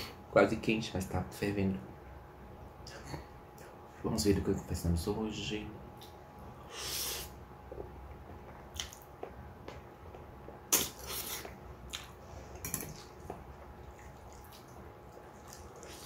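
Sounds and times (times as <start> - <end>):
wet chewing: 8.6 - 9.3, 10.5 - 16.0.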